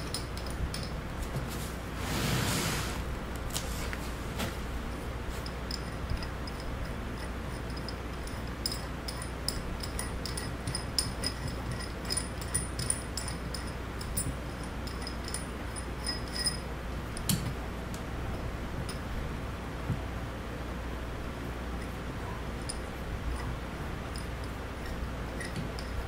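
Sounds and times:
metal valve parts clinking: 0:00.0 - 0:01.0, 0:05.4 - 0:17.5, 0:22.6 - 0:26.0
steady low hum: 0:00.0 - 0:26.0.

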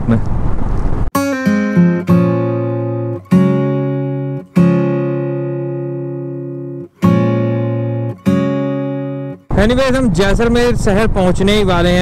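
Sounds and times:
guitar chords ringing: 0:01.1 - 0:09.6.

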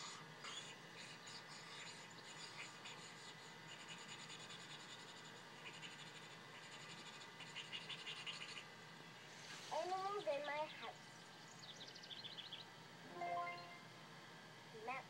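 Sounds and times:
marker scratching on paper: 0:01.6 - 0:08.6.

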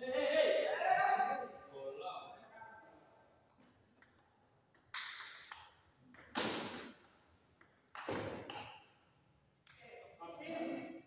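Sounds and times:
ping pong ball clicking: 0:04.0 - 0:08.7.

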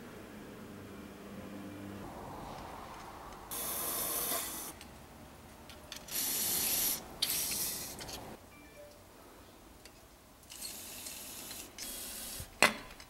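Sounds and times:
aerosol spray hissing: 0:06.1 - 0:08.0.

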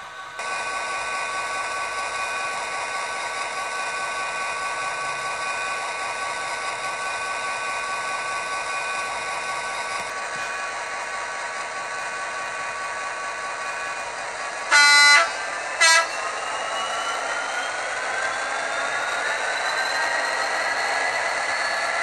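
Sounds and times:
tinny model locomotive engine: 0:00.0 - 0:22.0.

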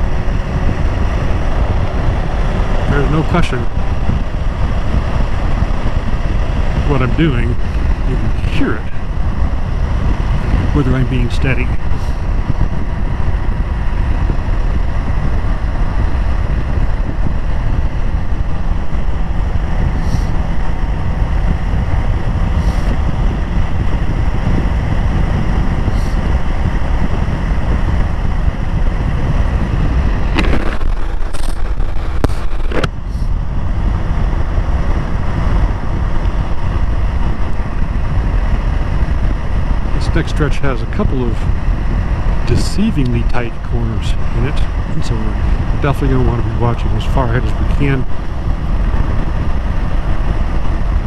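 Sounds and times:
motorcycle engine and exhaust: 0:00.0 - 0:51.0
wind on microphone: 0:00.0 - 0:51.0.

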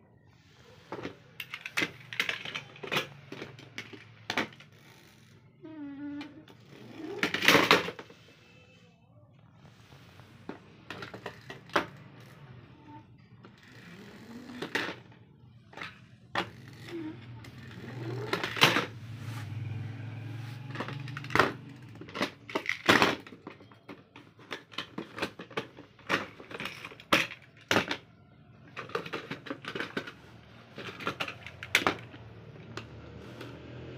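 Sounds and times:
metal toy cars on plastic case: 0:00.0 - 0:33.9.

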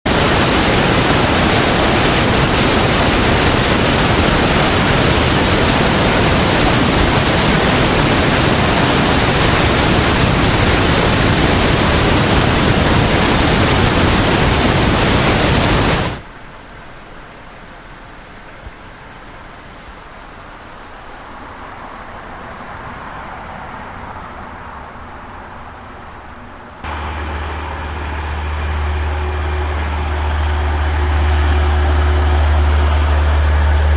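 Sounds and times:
floodwater rushing over spillway: 0:00.1 - 0:16.2, 0:26.8 - 0:33.9
low steady hum: 0:23.9 - 0:33.9.

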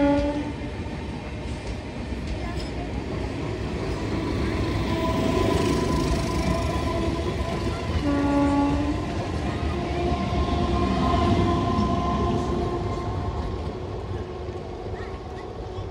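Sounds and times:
train horn: 0:00.0 - 0:00.6, 0:04.4 - 0:13.4
train coaches rumbling on rails: 0:00.0 - 0:15.9.

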